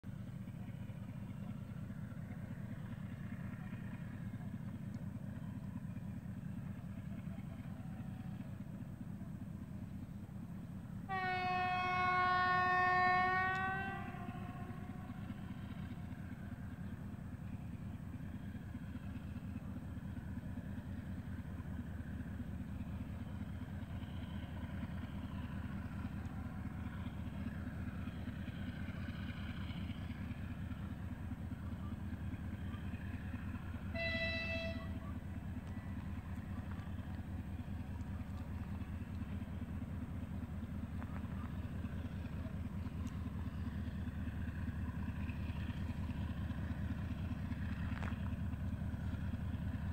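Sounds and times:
low locomotive rumble: 0.0s - 49.9s
locomotive horn blasts: 11.0s - 15.5s, 33.6s - 36.1s.

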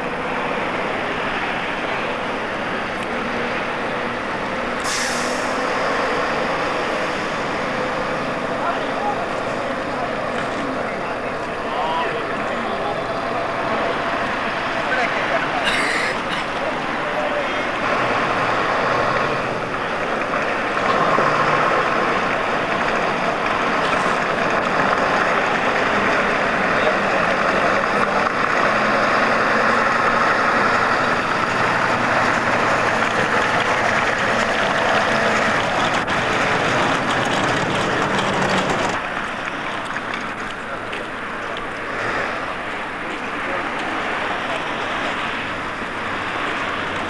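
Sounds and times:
truck diesel engine running: 0.0s - 47.0s
sudden hiss: 4.8s - 5.9s.

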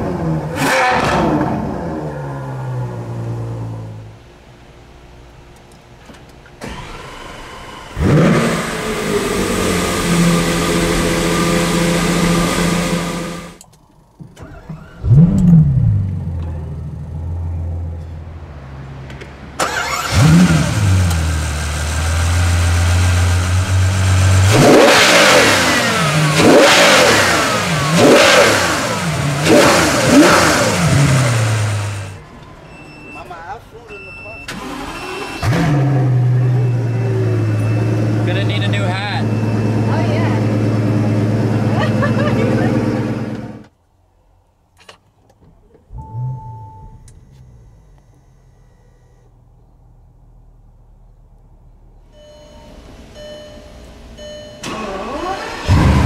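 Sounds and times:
car engine revving: 0.0s - 4.2s, 6.6s - 13.6s, 14.4s - 32.2s, 34.5s - 43.7s, 54.0s - 56.0s
car engines starting and idling: 0.0s - 56.0s.

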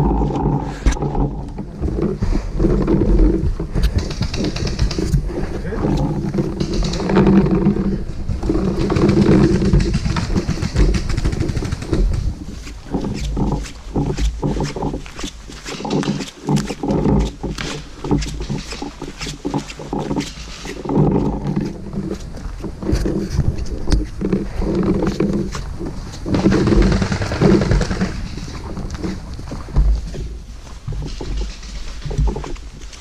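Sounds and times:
heavy rasping breathing: 0.0s - 11.1s
sharp clicks and knocks: 0.0s - 33.0s.

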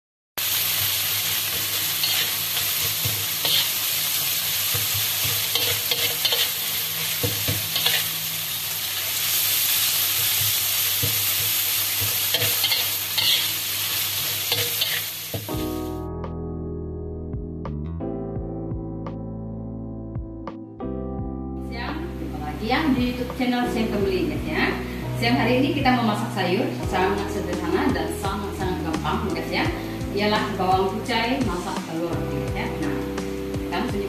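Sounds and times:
oil sizzling in a wok: 0.4s - 16.0s
metal ladle scraping a wok: 1.6s - 3.8s, 5.4s - 8.2s, 12.0s - 15.2s
soft keyboard music: 15.5s - 34.0s.

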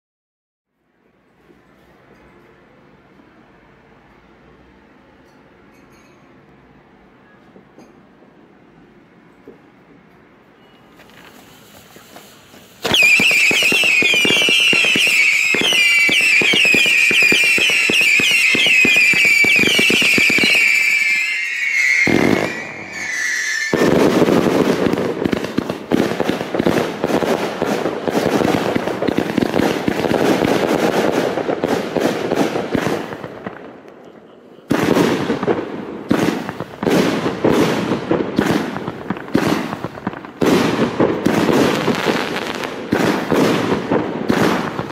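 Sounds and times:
firework whistles: 10.6s - 25.9s
firework crackling: 10.9s - 34.0s, 34.6s - 44.9s
firework shots: 11.0s - 44.9s.

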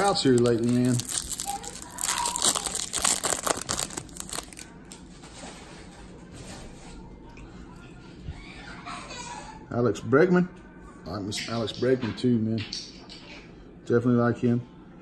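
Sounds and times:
cards rustling: 0.0s - 4.7s
wrapper crinkling and tearing: 0.0s - 5.5s.

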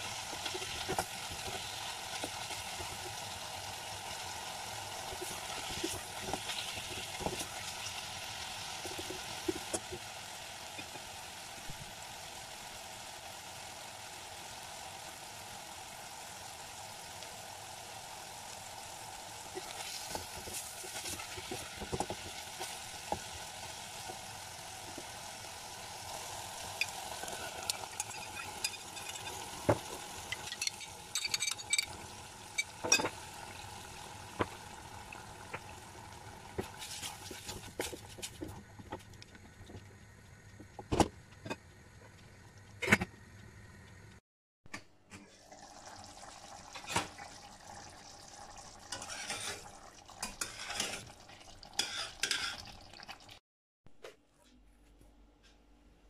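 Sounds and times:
sausage meat sizzling in pot: 0.0s - 43.1s, 45.3s - 53.4s
tomato sauce bubbling: 45.4s - 49.0s.

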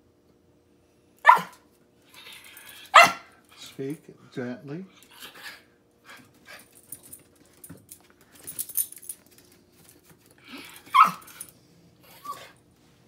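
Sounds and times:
small dog barking: 1.2s - 1.6s, 2.9s - 3.3s, 10.9s - 11.3s
small dog yip: 1.2s - 1.6s, 2.9s - 3.3s, 10.8s - 11.4s.

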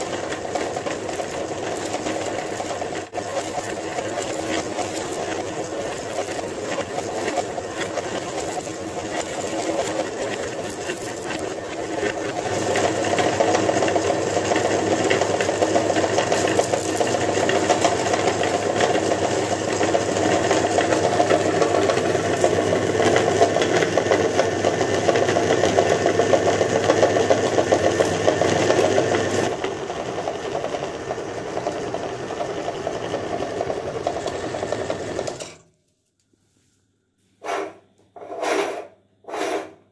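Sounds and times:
meat grinder motor grinding: 0.0s - 35.6s.

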